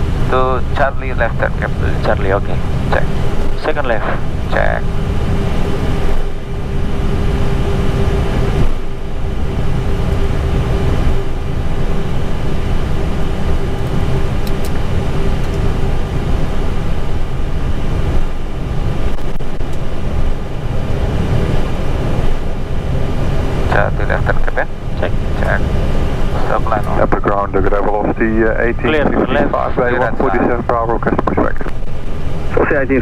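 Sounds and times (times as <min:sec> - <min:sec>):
aircraft engines idling rumble: 0:00.0 - 0:33.0
thin steady hum: 0:00.0 - 0:33.0.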